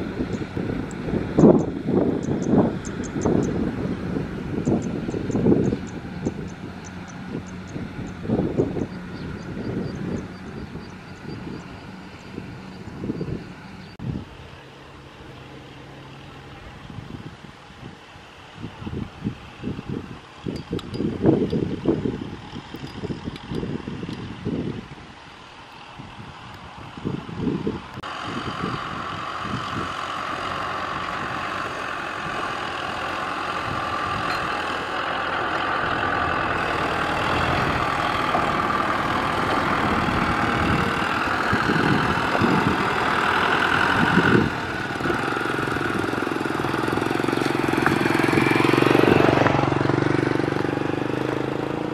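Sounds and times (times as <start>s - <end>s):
tractor diesel engine running: 0.0s - 51.9s
trailer knocks and clatter: 36.6s - 40.4s.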